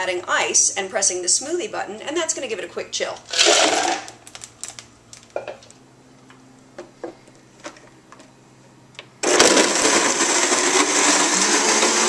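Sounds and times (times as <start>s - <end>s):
blender blending ice: 3.3s - 4.1s, 9.2s - 12.0s.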